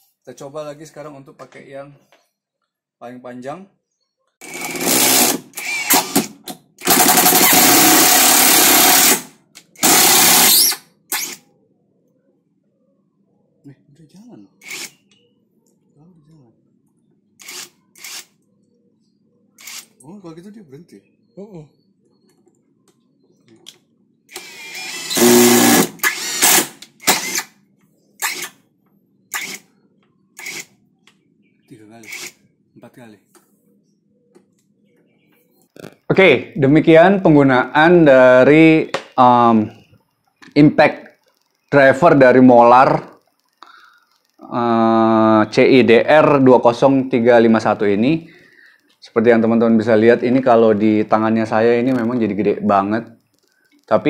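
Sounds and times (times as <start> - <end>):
impact driver driving screw into wood: 4.4 - 11.4, 24.3 - 27.5, 28.2 - 28.6, 29.3 - 29.7, 32.1 - 32.4.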